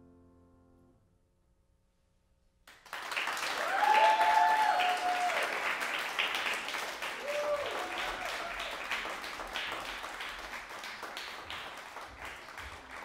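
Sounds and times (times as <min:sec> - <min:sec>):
audience applause: 0:02.7 - 0:13.0
voices cheering: 0:03.4 - 0:09.6.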